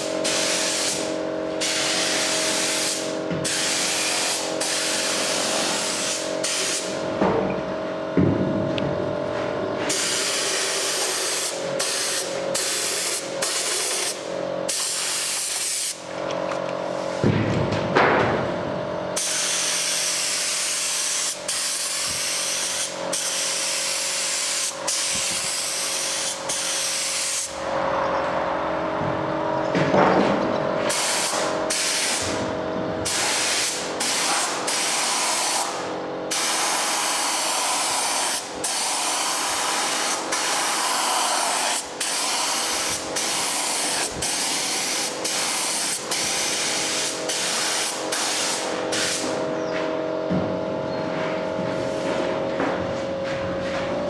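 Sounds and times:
paint spray gun hissing: 0:00.0 - 0:07.0, 0:09.9 - 0:16.0, 0:19.2 - 0:27.5, 0:30.9 - 0:32.2, 0:33.0 - 0:49.3
steady hum: 0:00.0 - 0:54.0.

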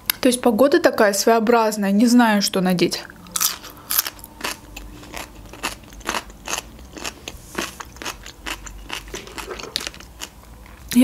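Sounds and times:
cucumber crunching being chewed: 0:03.2 - 0:10.9.

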